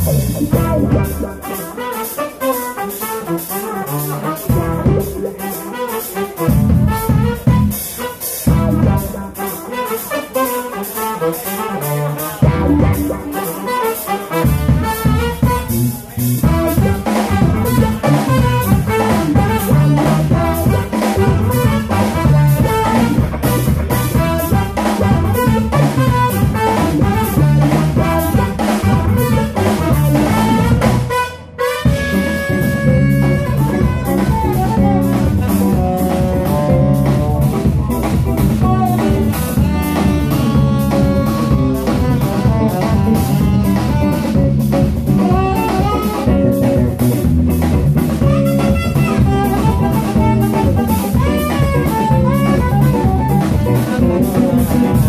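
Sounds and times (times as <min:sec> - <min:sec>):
bass guitar: 0:00.0 - 0:55.0
drum kit: 0:00.0 - 0:55.0
electric guitar: 0:00.0 - 0:55.0
saxophones and trumpet: 0:00.0 - 0:55.0.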